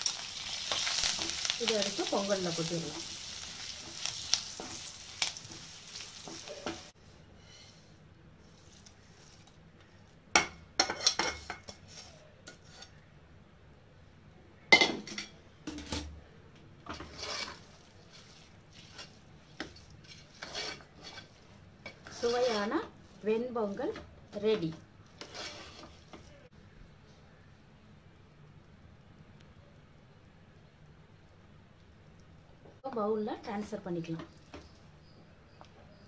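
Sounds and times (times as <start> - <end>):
hot ghee sizzling: 0.0 - 13.0, 16.8 - 26.6, 30.9 - 36.0
metal spoon scraping metal pots: 16.9 - 22.9, 23.9 - 26.2.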